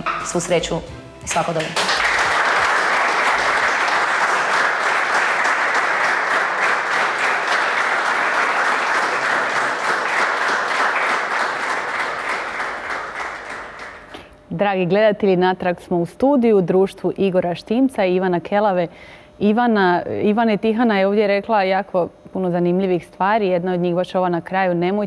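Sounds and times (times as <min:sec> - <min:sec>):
audience applauding: 0:01.3 - 0:14.2.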